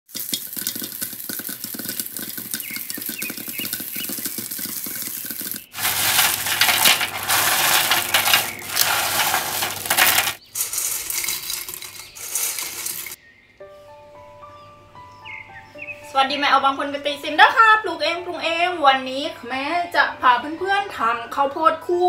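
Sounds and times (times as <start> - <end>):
popcorn popping in a pan: 0.1 - 13.2
hands tossing popcorn: 5.8 - 13.2.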